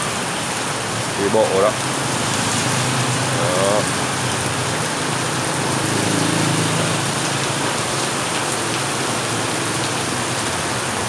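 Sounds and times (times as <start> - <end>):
heavy rain on wet street: 0.0 - 11.0.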